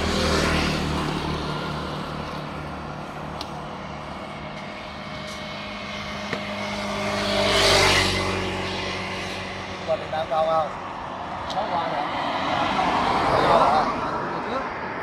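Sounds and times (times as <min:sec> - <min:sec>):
passing traffic engine hum: 0:00.0 - 0:15.0.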